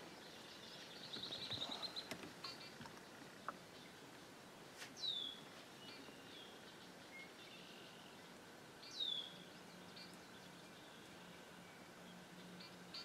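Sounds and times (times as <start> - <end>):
faint marsh ambience: 0.0 - 13.0.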